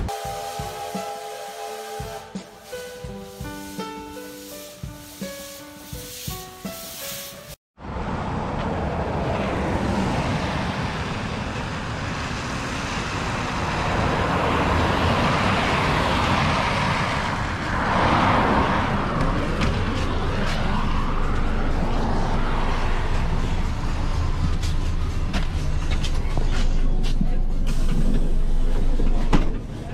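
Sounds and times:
bus engine: 7.8 - 29.9
tyres on wet road: 7.8 - 29.9.

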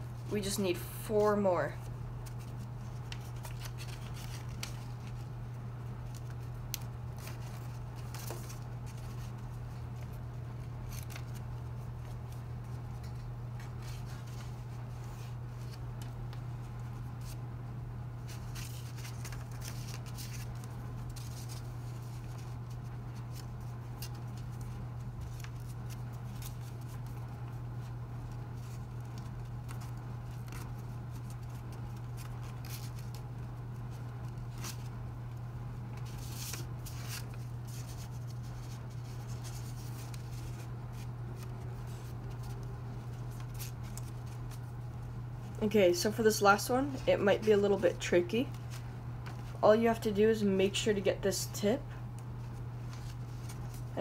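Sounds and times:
steady low hum: 0.0 - 54.0
paper crinkling and rustling: 1.8 - 17.4, 18.2 - 45.7, 46.8 - 49.6, 52.2 - 54.0.

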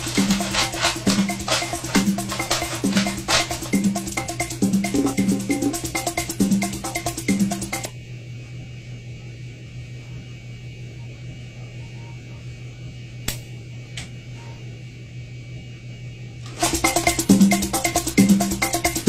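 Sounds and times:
music: 0.0 - 7.9, 16.5 - 19.0.

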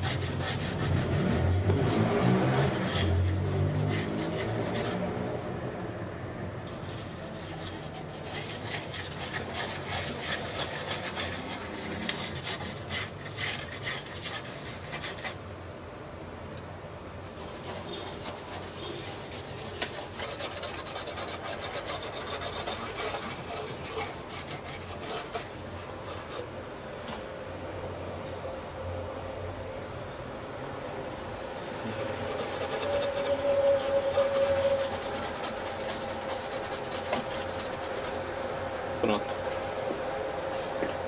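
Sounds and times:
toothbrush scrubbing circuit board: 0.0 - 5.2, 6.7 - 15.4, 17.3 - 26.4, 31.8 - 38.2.

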